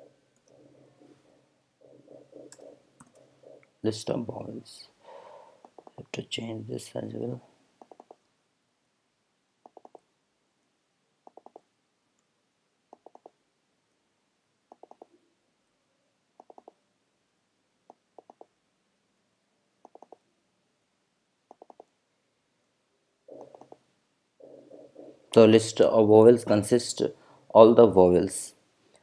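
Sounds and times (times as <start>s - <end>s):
mouse and keyboard clicks: 5.6s - 6.1s, 7.8s - 8.2s, 9.6s - 10.1s, 11.2s - 11.7s, 12.9s - 13.4s, 14.7s - 15.1s, 16.4s - 16.8s, 17.9s - 18.5s, 19.8s - 20.2s, 21.5s - 21.9s, 23.3s - 23.8s.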